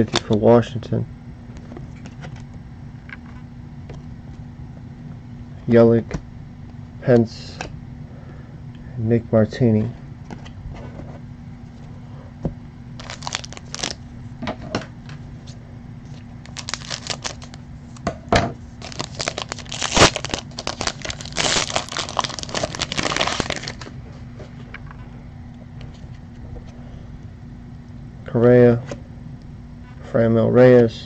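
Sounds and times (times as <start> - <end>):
foil wrapper tearing and crinkling: 13.0 - 14.0, 16.4 - 17.6, 18.8 - 23.9.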